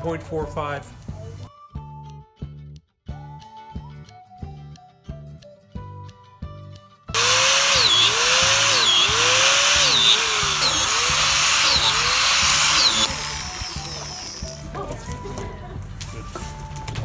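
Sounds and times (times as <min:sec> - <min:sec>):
power drill boring into log: 0:07.2 - 0:14.7.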